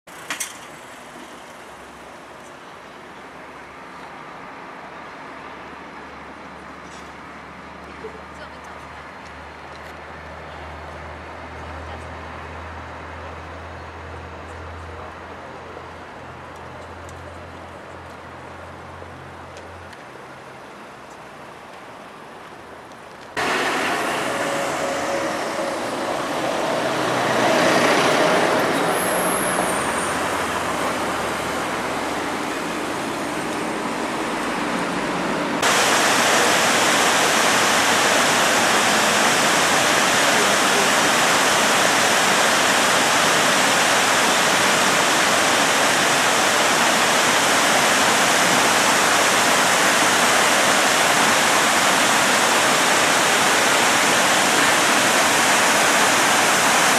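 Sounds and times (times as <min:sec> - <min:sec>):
road traffic: 0:00.1 - 0:56.9
vehicle passing: 0:23.4 - 0:49.4
river rushing over weir: 0:23.4 - 0:56.9.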